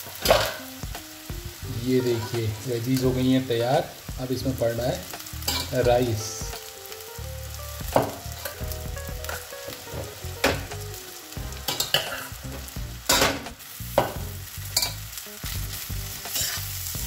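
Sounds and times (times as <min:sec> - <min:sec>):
food sizzling: 0:00.0 - 0:17.0
metal spatula scraping wok: 0:05.4 - 0:05.8, 0:11.6 - 0:13.3, 0:16.2 - 0:16.9.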